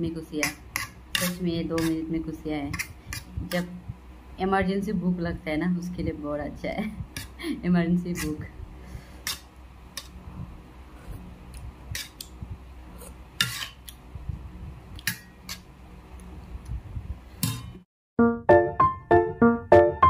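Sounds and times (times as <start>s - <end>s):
metal spoon scraping a plate: 0.7s - 2.0s, 7.2s - 7.4s, 11.9s - 12.2s, 13.0s - 13.8s
piano music: 18.2s - 20.0s.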